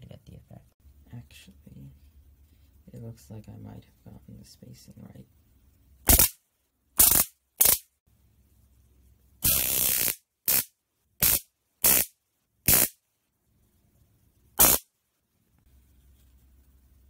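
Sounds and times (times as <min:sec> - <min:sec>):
electric sparks zapping: 0:06.1 - 0:06.4, 0:07.0 - 0:07.9, 0:09.4 - 0:12.1, 0:12.7 - 0:13.0, 0:14.6 - 0:14.8.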